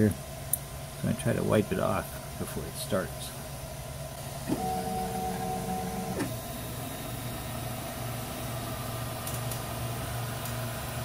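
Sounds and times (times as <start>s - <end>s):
low printer hum: 0.2s - 11.0s
stepper motors whining: 4.4s - 7.0s.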